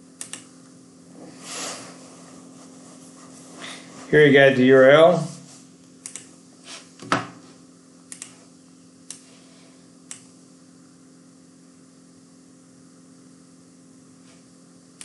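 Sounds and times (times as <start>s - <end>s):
steady low hum: 0.0s - 15.0s
computer mouse clicks: 0.2s - 0.5s, 6.0s - 6.3s, 8.1s - 8.4s, 10.1s - 10.3s.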